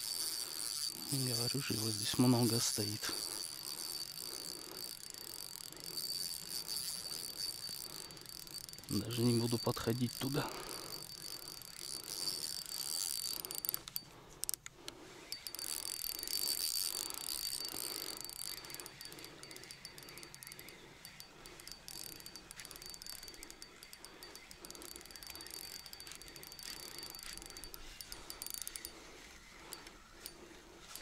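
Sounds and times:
crickets chirping: 0.0 - 31.0
fishing reel gears whirring: 0.0 - 31.0.

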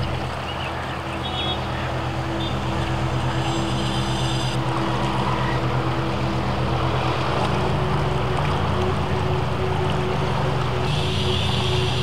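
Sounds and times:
engine running with pulsing drone: 0.0 - 12.0
river rushing: 0.0 - 12.0.

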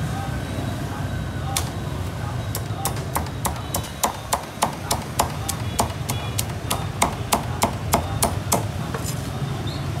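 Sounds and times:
cleaver chopping on wooden block: 2.6 - 8.8.

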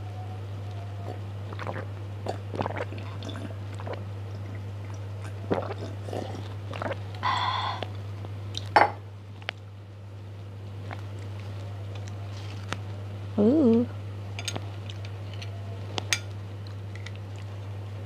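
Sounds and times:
steady low hum: 0.0 - 18.0
person gulping a drink: 1.0 - 7.9.

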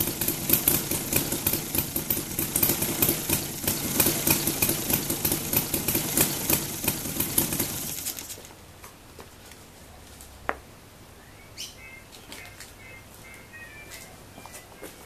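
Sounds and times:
model aircraft engine idling: 0.0 - 8.4.

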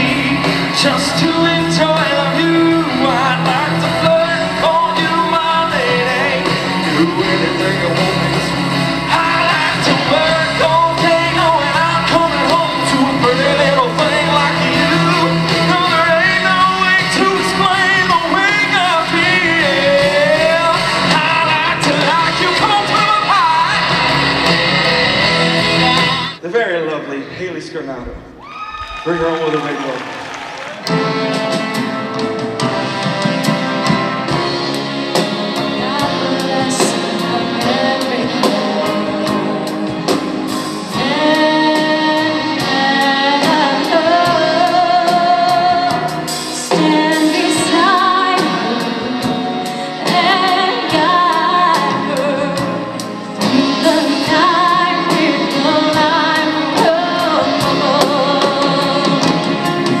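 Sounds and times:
band playing over a steady beat: 0.0 - 26.4, 29.2 - 60.0
woman singing into a microphone: 35.6 - 39.8, 41.0 - 59.6.

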